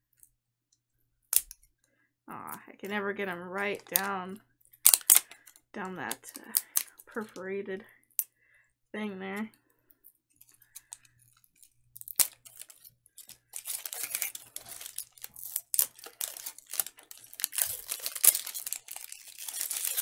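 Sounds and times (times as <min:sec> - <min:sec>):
plastic wrapper tearing and crinkling: 0:03.6 - 0:07.4, 0:10.4 - 0:20.0.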